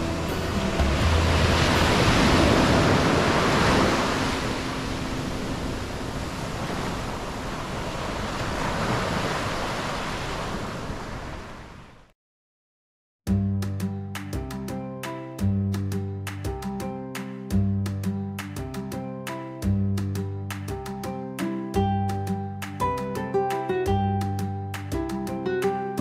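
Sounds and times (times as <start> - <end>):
sea surf breaking on shore: 0.0 - 12.0.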